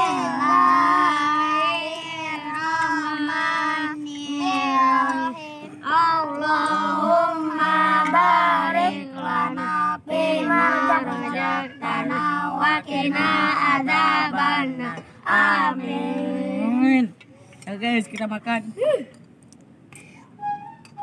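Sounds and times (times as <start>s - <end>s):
children chanting a prayer: 0.0s - 16.7s.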